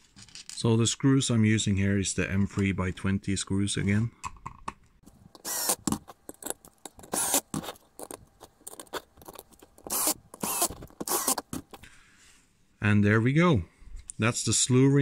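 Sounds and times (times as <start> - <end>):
screwdriver scraping rasps: 5.3 - 11.8.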